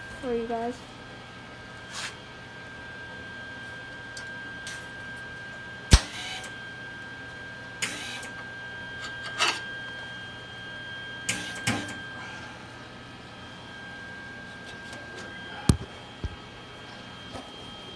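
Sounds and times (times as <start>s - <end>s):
welding arc crackling: 5.9s - 6.5s.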